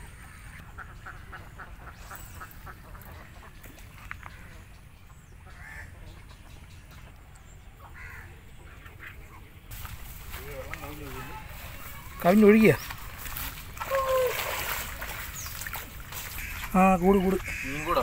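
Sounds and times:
ducks quacking: 0.2s - 4.7s, 5.4s - 7.1s, 14.9s - 18.0s.

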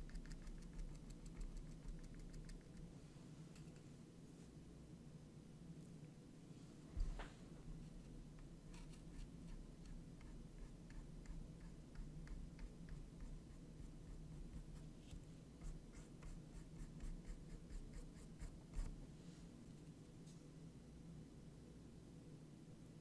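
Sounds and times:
paintbrush bristle strokes: 7.8s - 19.6s.

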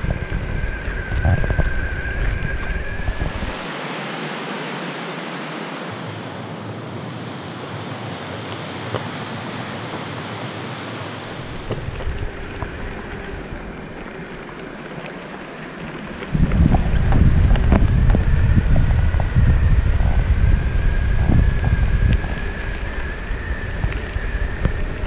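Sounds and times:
gravel clicks: 0.0s - 3.6s, 11.4s - 25.0s
wind on the microphone: 0.0s - 4.8s, 11.2s - 25.0s.

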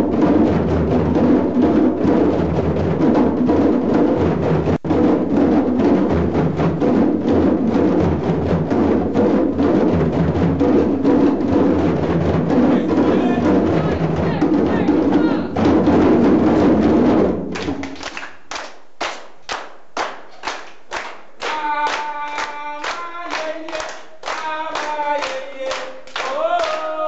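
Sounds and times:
drums playing steady rhythm: 0.0s - 18.1s.

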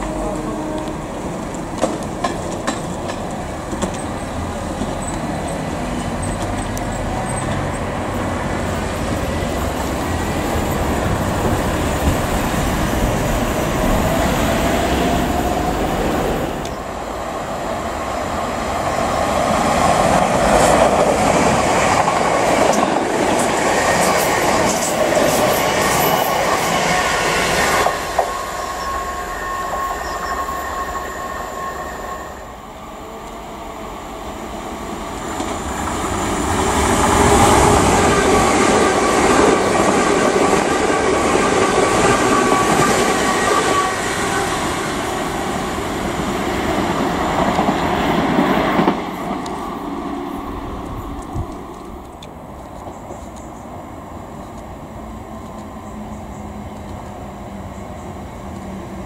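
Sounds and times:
train wheels rumbling on track: 0.0s - 59.0s
faint train whine: 22.0s - 59.0s.

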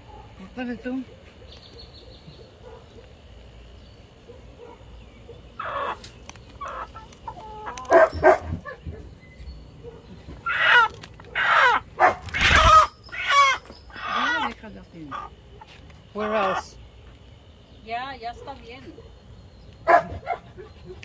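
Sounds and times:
hen squawking and clucking: 5.6s - 9.0s, 10.3s - 15.4s.

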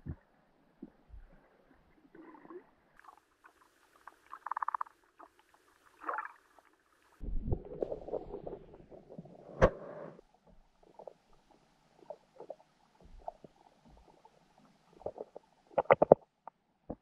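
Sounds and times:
underwater clicks and crackles: 2.1s - 17.0s
low underwater rumble: 7.2s - 15.9s.

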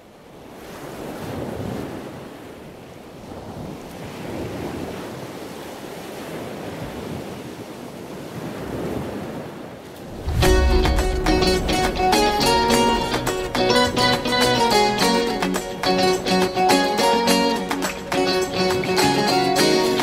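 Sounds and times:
surf washing onto beach: 0.4s - 20.0s
wind buffeting microphone: 6.4s - 15.4s.

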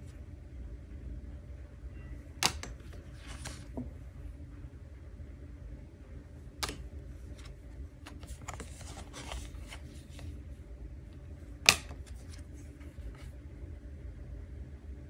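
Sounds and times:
low steady hum: 0.0s - 15.0s
card snapping: 2.4s - 3.7s, 6.6s - 7.5s, 8.1s - 10.2s, 11.7s - 12.4s
cards sliding and tapping: 2.4s - 3.9s, 6.6s - 10.3s, 11.6s - 13.3s.

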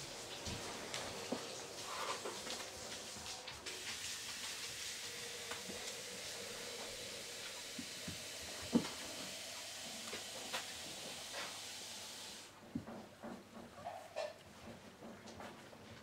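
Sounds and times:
puppy paws on tiled floor: 0.0s - 6.0s
steady background hiss: 0.0s - 12.6s.

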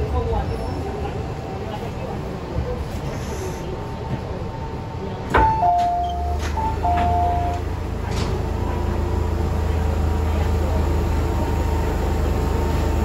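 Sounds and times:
two-note door chime: 5.5s - 7.6s.

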